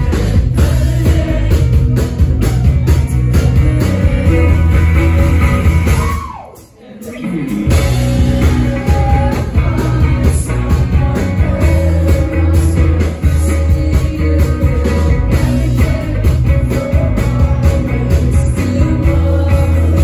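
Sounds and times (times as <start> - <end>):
rock band playing live: 0.0 - 20.0
woman singing: 3.4 - 4.8, 6.6 - 20.0.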